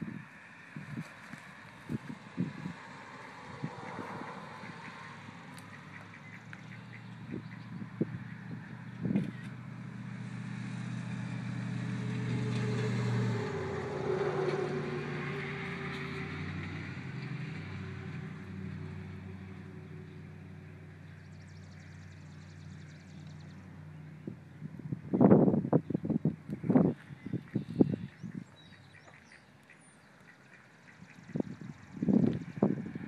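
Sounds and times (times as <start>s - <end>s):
vehicle driving past: 0.0s - 25.6s.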